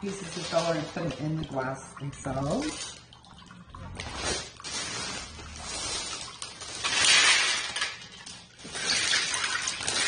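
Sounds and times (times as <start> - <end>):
filler clattering in plastic bag: 4.1 - 10.0
pieces clinking into glass: 6.6 - 10.0.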